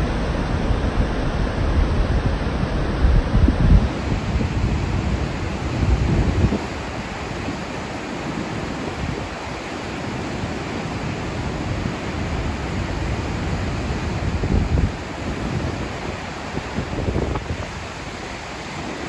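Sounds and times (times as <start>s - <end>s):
wind buffeting microphone: 0.0s - 19.0s
river rapids rushing: 3.9s - 19.0s.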